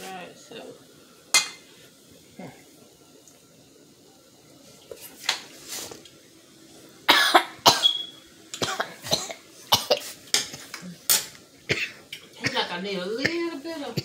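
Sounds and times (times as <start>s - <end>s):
person coughing: 7.1s - 8.0s, 8.6s - 10.0s, 11.7s - 12.7s.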